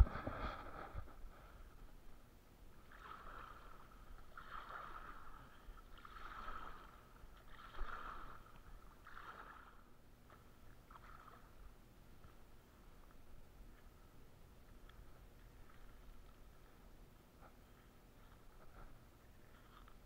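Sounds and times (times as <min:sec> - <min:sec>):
paddles splashing in water: 0:02.8 - 0:12.3.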